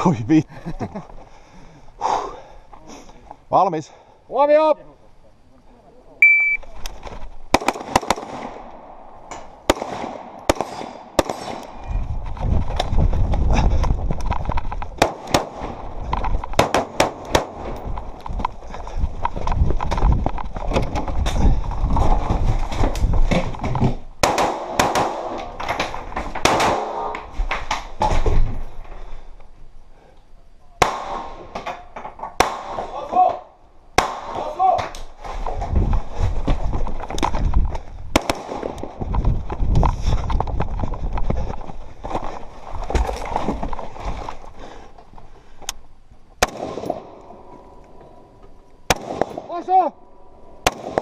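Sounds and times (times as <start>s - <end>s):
rifle shots: 7.5s - 9.0s, 9.6s - 11.8s, 15.0s - 15.9s, 16.6s - 17.8s, 24.2s - 25.5s, 26.4s - 27.2s, 32.4s - 32.9s, 38.1s - 38.8s, 46.4s - 47.2s, 48.9s - 49.5s, 50.6s - 51.0s
running footsteps: 11.8s - 15.1s, 15.8s - 24.1s, 35.1s - 45.7s.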